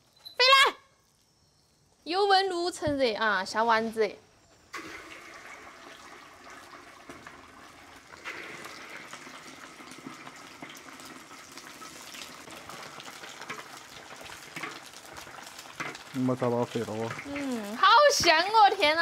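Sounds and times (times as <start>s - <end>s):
meatballs sizzling in hot oil: 4.8s - 19.0s.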